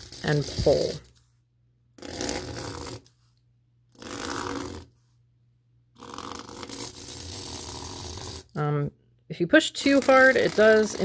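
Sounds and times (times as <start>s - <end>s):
pen scratching on fabric: 0.0s - 1.1s, 2.0s - 3.2s, 3.9s - 5.0s, 6.0s - 8.6s, 9.8s - 11.0s.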